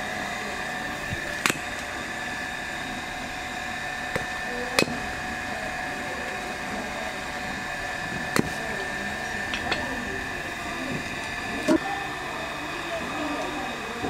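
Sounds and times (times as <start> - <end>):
steady hum: 0.0 - 14.0
hatchet chopping firewood: 1.4 - 1.6, 4.1 - 5.0, 8.3 - 8.6.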